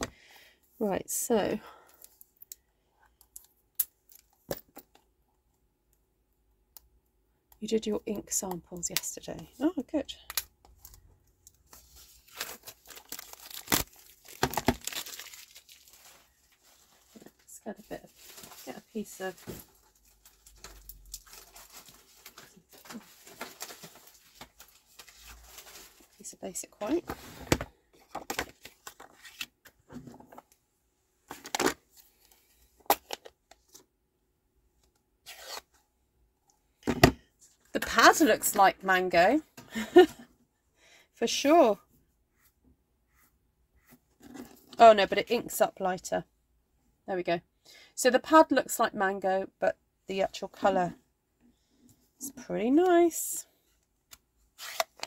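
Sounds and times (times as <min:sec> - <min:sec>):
cellophane crinkling and tearing: 0:11.9 - 0:17.4, 0:18.0 - 0:26.2.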